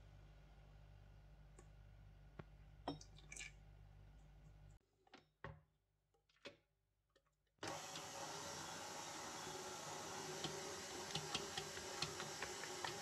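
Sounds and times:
mixer motor whirring: 7.6 - 13.0.

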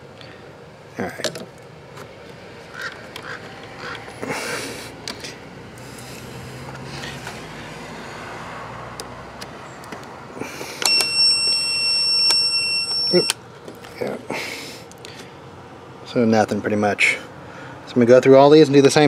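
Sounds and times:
fuses clicking and rustling: 9.0 - 14.0
steady electronic beep: 10.8 - 13.4.

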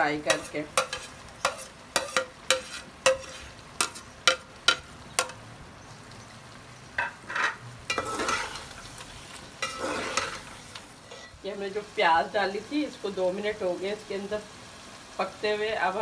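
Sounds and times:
metal spoon scraping in pot: 0.2 - 4.8, 7.0 - 11.3.

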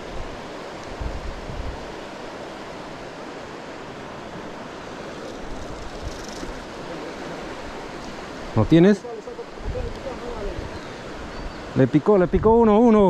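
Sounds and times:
wind on microphone: 0.0 - 2.1, 5.2 - 7.0, 9.5 - 13.0
river water rushing: 0.0 - 13.0.

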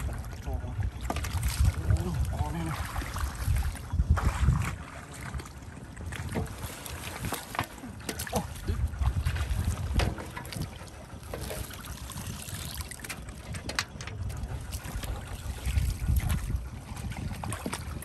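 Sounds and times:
low rumble: 0.0 - 18.0
muddy water splashing and sloshing: 0.0 - 18.0
water running through mesh: 6.5 - 8.6, 9.2 - 16.6.

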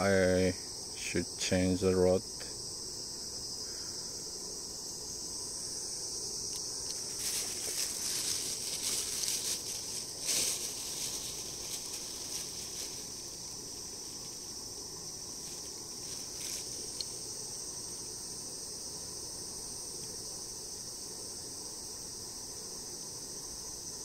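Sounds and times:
high-pitched insect chorus: 0.0 - 24.0
handling rustles: 6.5 - 14.6, 15.4 - 17.1.

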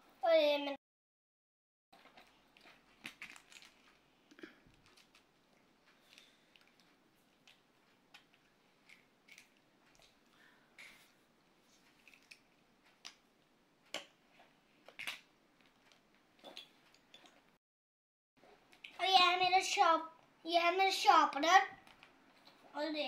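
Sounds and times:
small objects clicking and rustling: 2.0 - 4.0, 4.7 - 5.3, 11.9 - 12.5.

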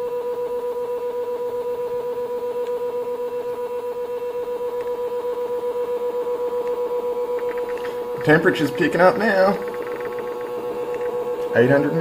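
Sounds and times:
stepper motor whine: 4.2 - 12.0.

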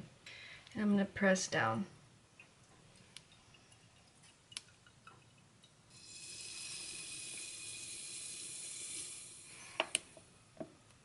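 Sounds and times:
air hissing through coffee filter: 5.9 - 10.2.

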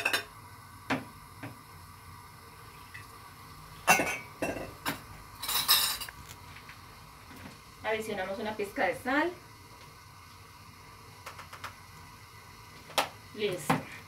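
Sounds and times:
glass jug and bowl clinking: 3.8 - 6.1.

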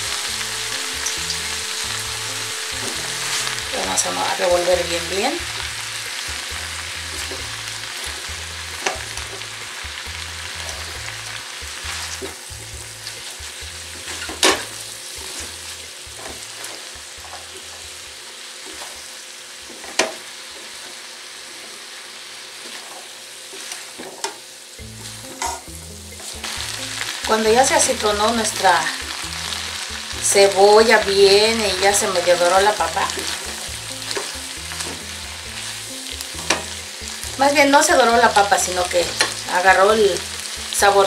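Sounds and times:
vegetables sizzling in a skillet: 0.0 - 41.0.

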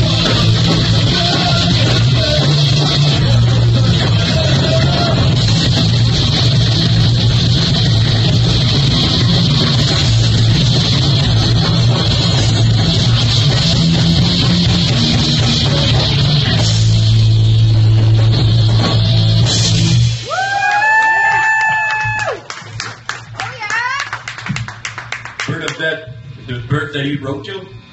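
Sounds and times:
rock band playing live: 0.0 - 20.3.

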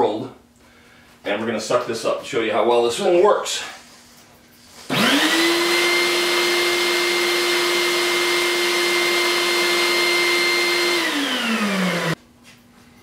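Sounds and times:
shop vac motor whine: 4.8 - 12.2
motor spinning down: 4.9 - 12.2.

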